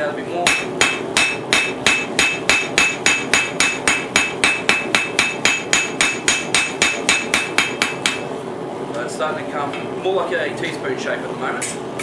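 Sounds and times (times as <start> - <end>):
hammer striking steel on anvil: 0.4 - 8.3.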